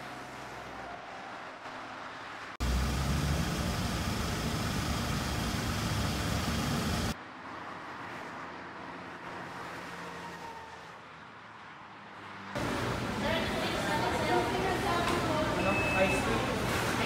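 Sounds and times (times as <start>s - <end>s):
loud street traffic rumble: 0.0s - 17.0s
car cabin road noise: 2.6s - 7.2s.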